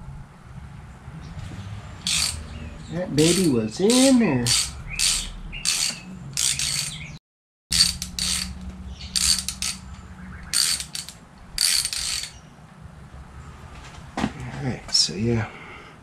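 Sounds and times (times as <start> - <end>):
hand ratchet clicking: 2.0 - 2.4, 3.2 - 7.0, 7.7 - 9.9, 10.5 - 12.4.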